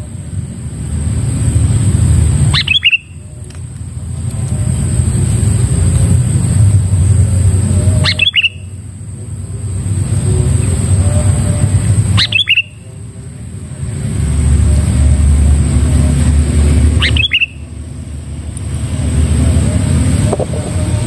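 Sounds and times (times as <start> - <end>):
steady low rumble: 0.0 - 21.0
bird harsh calls: 2.5 - 3.2, 7.9 - 8.8, 12.1 - 12.9, 16.9 - 17.7.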